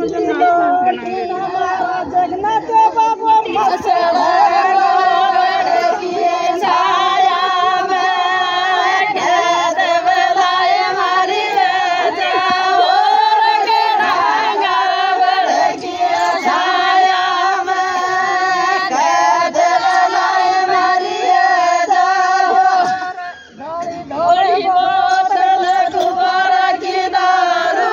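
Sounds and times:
women singing folk song: 0.0 - 27.9.

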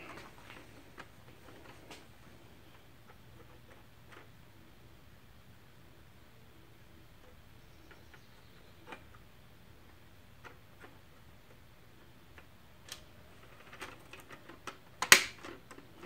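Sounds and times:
plastic faceplate snapping on: 15.0 - 15.6.

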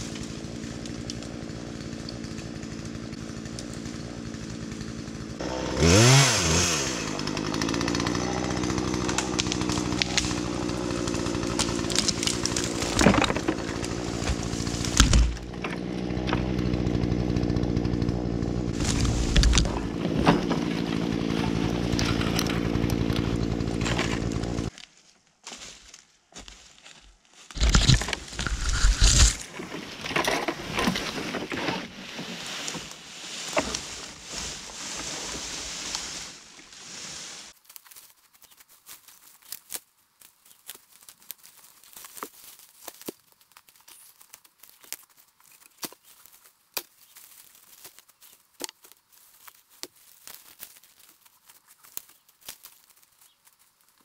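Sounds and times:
twigs snapping: 0.0 - 4.9, 7.4 - 18.0, 18.7 - 54.0
small engine running: 0.0 - 24.7
branches dragged through undergrowth: 0.0 - 54.0
footsteps on forest floor: 0.0 - 54.0.

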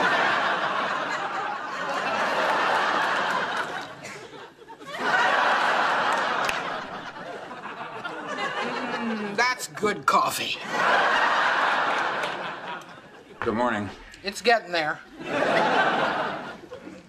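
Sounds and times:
audience laughing: 0.0 - 14.0, 15.0 - 17.0.

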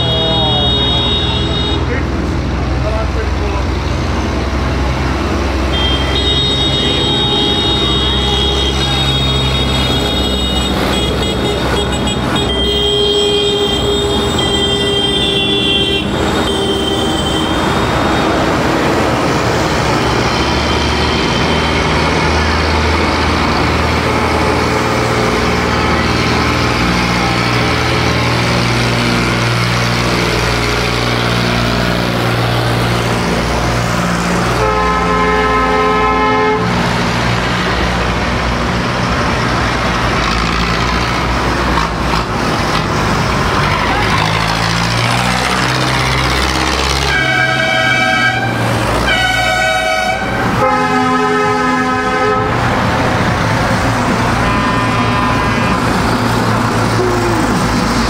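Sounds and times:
horn sounding: 0.0 - 2.0, 5.6 - 18.4, 34.5 - 36.9, 47.0 - 52.8, 54.0 - 56.3
tractor engines passing: 0.0 - 58.0.

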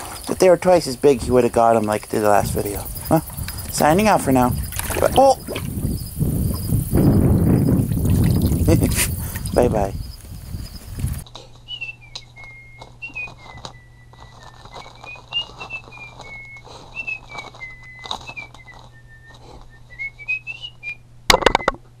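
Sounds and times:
steady low hum: 0.0 - 22.0
person whistling a tune: 11.7 - 21.0.

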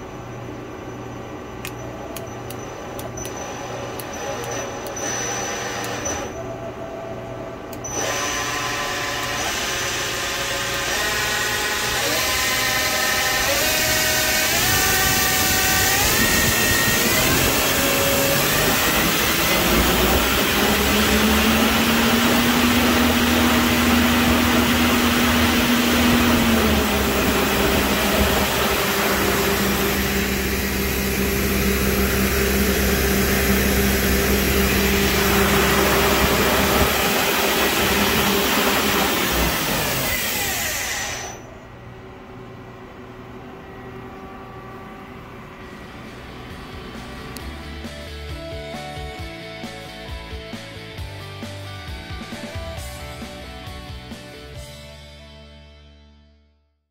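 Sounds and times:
lathe spindle whirring: 0.2 - 47.5
quiet machine hum: 41.4 - 48.5.

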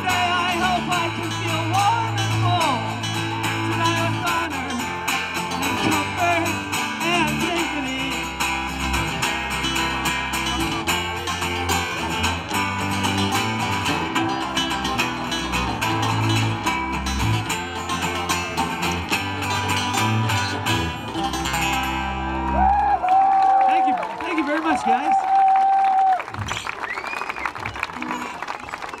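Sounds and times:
strummed guitar: 0.0 - 23.0
low held bass notes: 0.0 - 23.3.

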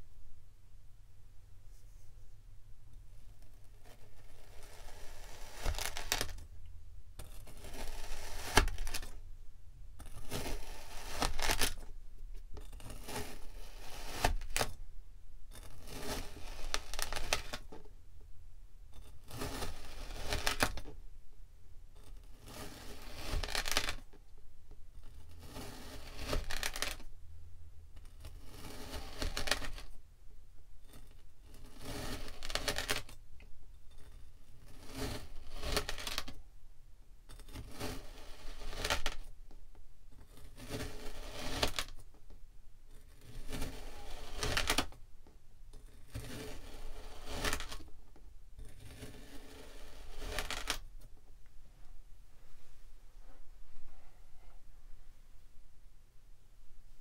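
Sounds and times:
blade cutting through sand: 43.2 - 44.8.

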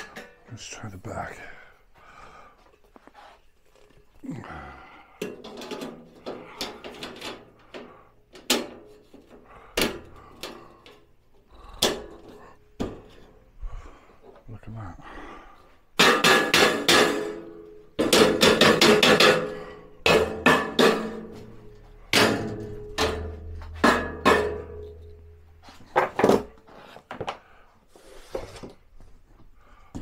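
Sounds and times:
ringing metallic knocks on shelving: 16.0 - 21.5, 22.1 - 25.0.

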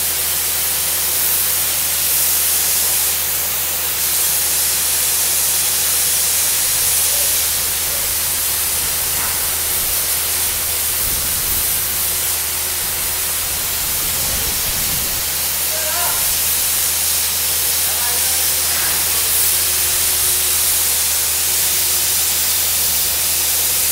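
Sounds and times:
compressed air spraying water: 0.0 - 23.9.

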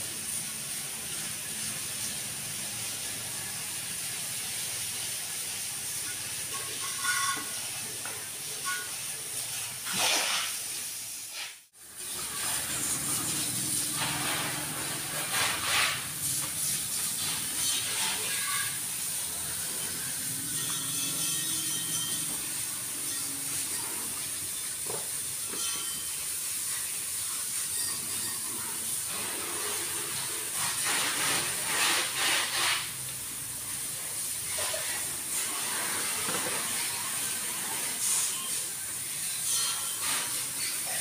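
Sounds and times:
steady hiss: 0.0 - 41.0
wash mitt rubbing foam: 12.4 - 18.0, 29.1 - 33.2.

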